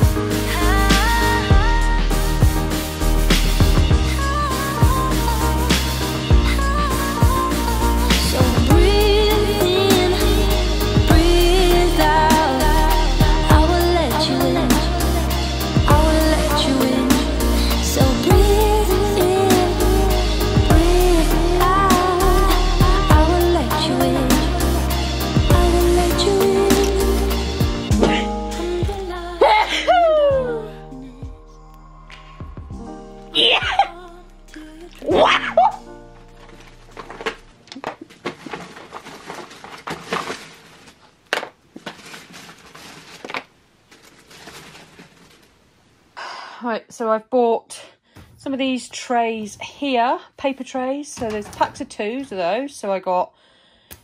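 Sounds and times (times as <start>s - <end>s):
pop song with singing: 0.0s - 36.1s
drum beat: 2.4s - 4.1s, 27.6s - 29.1s
crinkling of wrapping: 36.0s - 46.1s.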